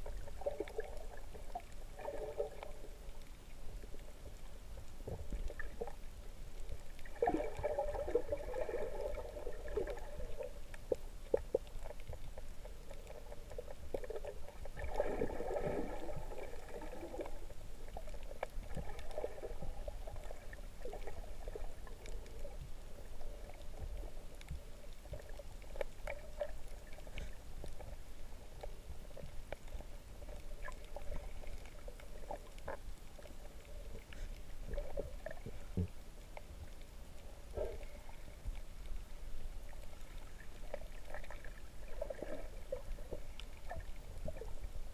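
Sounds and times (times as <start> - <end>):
underwater water rushing and bubbling: 0.0 - 44.9
faint clicks: 20.1 - 42.0.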